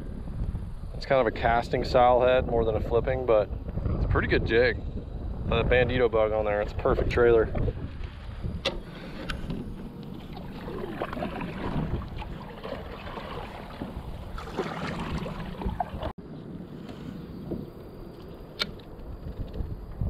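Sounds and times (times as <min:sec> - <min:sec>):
kayak paddle strokes splashing: 0:08.9 - 0:16.1.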